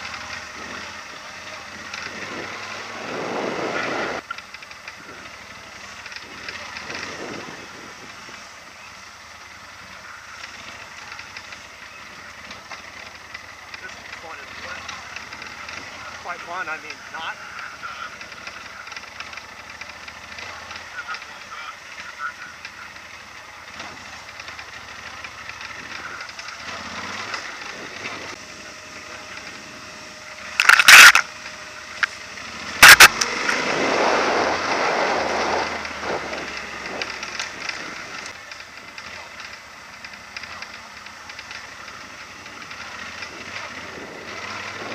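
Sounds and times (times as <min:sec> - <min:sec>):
motorcycle on gravel trail: 0:00.0 - 0:44.9
tyres crackling over stones: 0:30.5 - 0:32.2, 0:32.8 - 0:33.7
rushing noise: 0:32.8 - 0:38.3.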